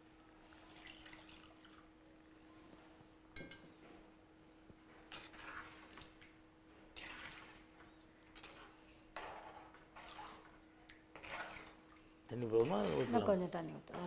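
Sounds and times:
low steady hum: 0.0s - 14.0s
ladle scraping and sloshing in pot: 5.0s - 6.2s, 6.8s - 13.3s.

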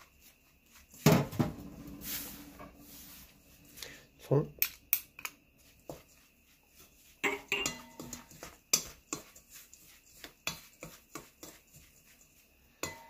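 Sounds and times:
chopsticks stirring in metal bowl: 4.6s - 13.0s.

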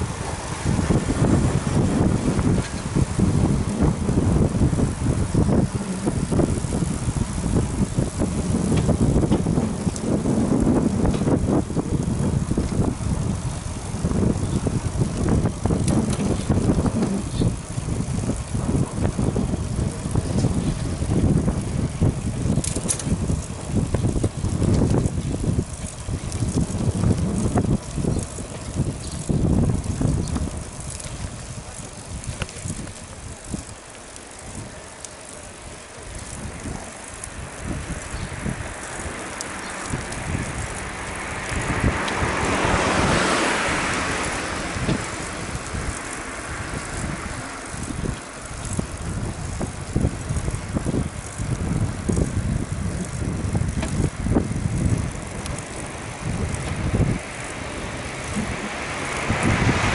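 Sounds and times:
bicycle riding on road: 0.0s - 59.9s
wind rumbling on microphone: 0.0s - 59.9s
car passing: 34.2s - 52.3s, 53.0s - 59.9s.

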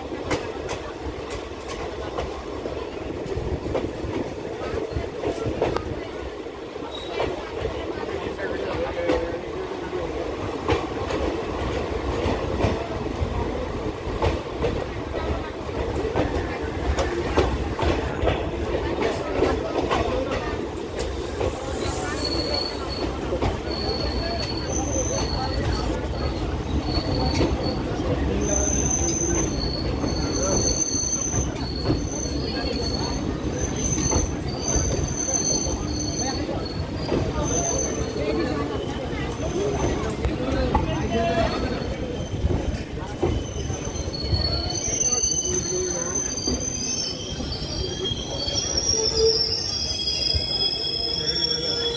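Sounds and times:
train carriage rumbling: 0.0s - 51.9s
high-pitched metallic squeals: 41.6s - 51.9s.

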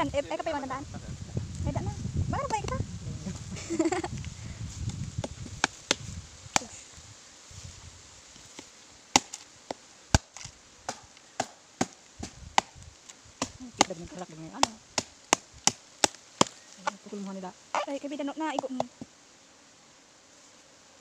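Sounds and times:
machete chopping wooden log: 5.2s - 6.7s, 9.1s - 12.8s, 14.6s - 17.0s.

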